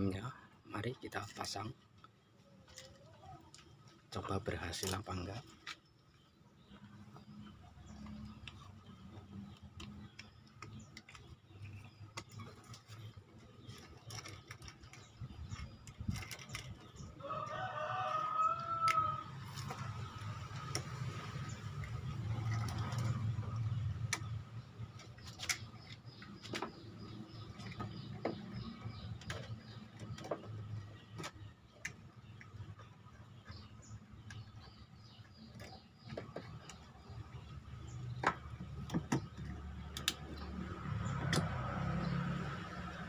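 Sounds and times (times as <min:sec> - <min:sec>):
rooster crowing: 0:17.2 - 0:19.3.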